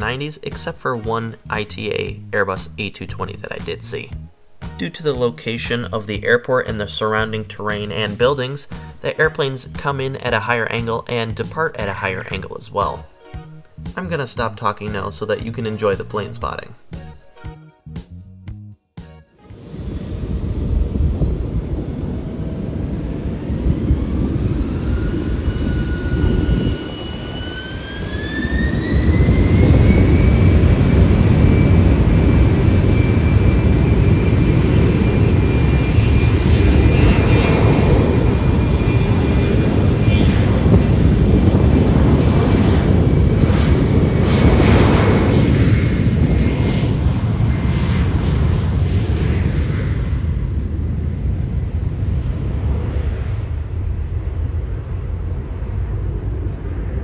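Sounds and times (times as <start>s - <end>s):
jet engines spooling up: 19.4s - 57.0s.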